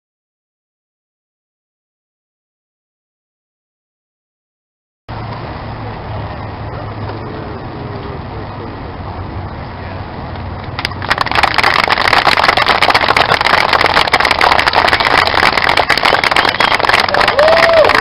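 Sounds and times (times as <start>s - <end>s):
crowd clapping: 10.7s - 18.0s.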